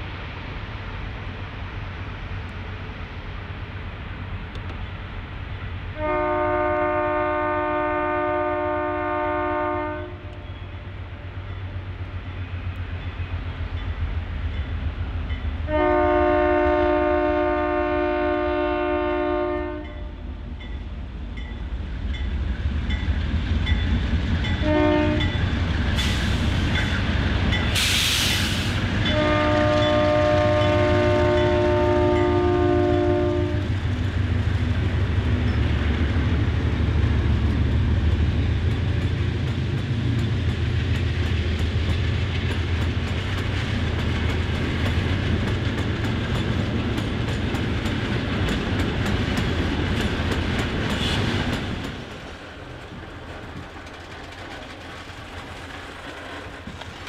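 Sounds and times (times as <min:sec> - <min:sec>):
diesel locomotive engines droning: 0:00.0 - 0:57.0
locomotive chime horn: 0:06.0 - 0:10.9, 0:15.6 - 0:20.3, 0:24.4 - 0:25.5, 0:29.0 - 0:33.7
train wheels clicking: 0:20.5 - 0:57.0
burst of hiss: 0:25.9 - 0:26.8, 0:27.7 - 0:28.9.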